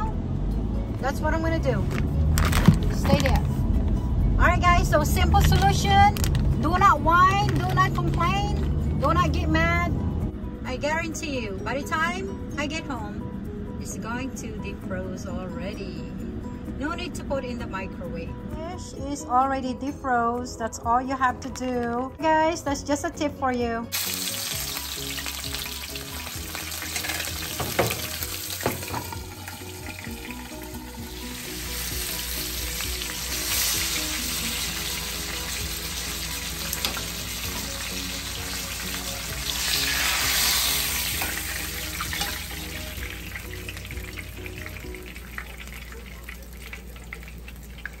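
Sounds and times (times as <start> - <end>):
fish sizzling in oil: 23.9 - 48.0.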